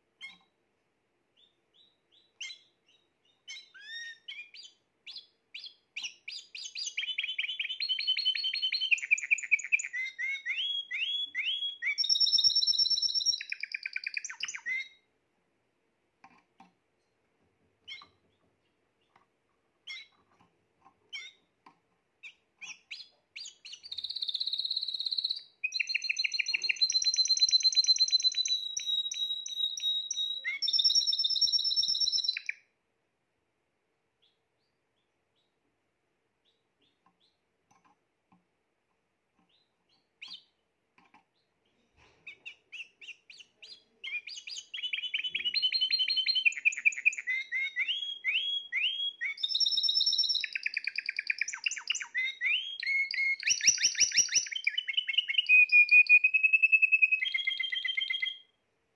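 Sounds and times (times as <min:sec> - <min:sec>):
canary singing trills: 0:00.2 - 0:00.5, 0:01.4 - 0:15.1, 0:17.8 - 0:19.2, 0:19.8 - 0:21.5, 0:22.2 - 0:32.7, 0:39.4 - 0:58.6.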